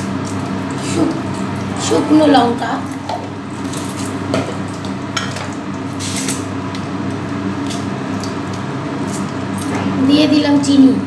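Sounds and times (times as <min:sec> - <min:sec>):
chilli sizzling in hot oil: 0:02.2 - 0:09.6.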